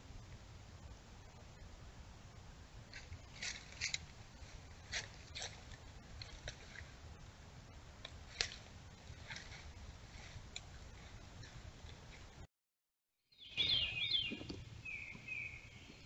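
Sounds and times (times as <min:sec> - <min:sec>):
faint low rumble: 0:00.0 - 0:12.5
dry leaves rustling and crackling: 0:02.9 - 0:06.9, 0:08.3 - 0:11.2.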